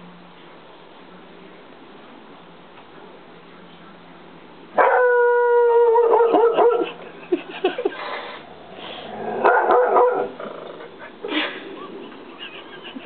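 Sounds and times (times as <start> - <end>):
dog howling: 4.8 - 6.8
dog yipping and barking: 5.9 - 6.9, 9.4 - 10.3.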